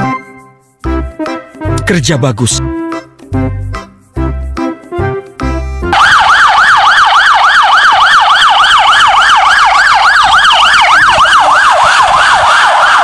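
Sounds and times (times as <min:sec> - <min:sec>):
music: 0:00.0 - 0:06.0
police siren yelping: 0:05.9 - 0:13.0.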